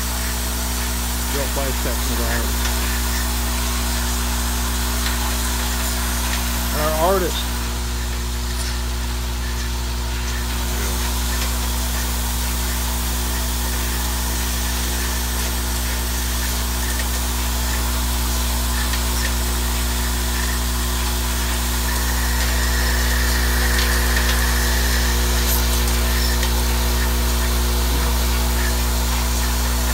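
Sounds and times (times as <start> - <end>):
electric buzz: 0.0 - 29.9.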